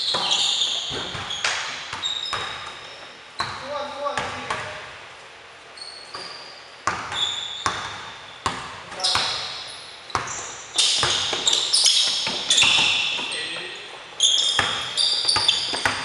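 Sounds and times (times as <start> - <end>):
sneaker squeaks: 0.0 - 4.7, 5.7 - 16.0
basketball bouncing on wooden floor: 0.1 - 3.6, 6.2 - 13.4, 14.3 - 16.0.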